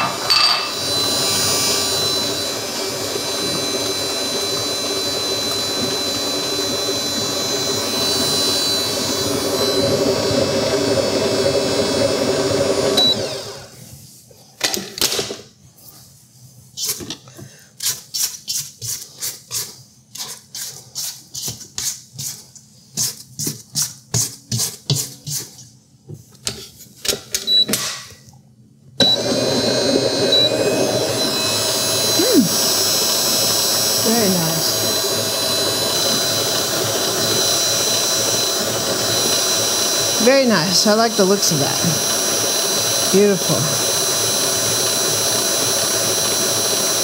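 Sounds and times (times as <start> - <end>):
stand mixer motor running: 0.0 - 13.7, 29.0 - 47.0.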